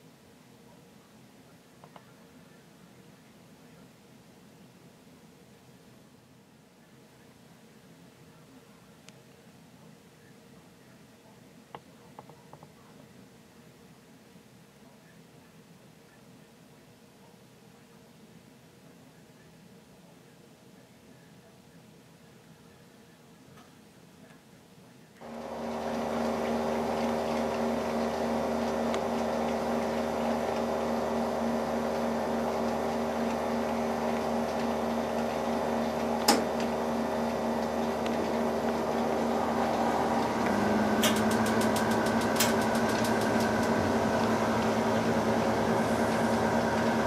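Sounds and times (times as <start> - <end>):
steady mechanical hum: 0.0 - 47.0
sharp click: 41.0 - 43.5.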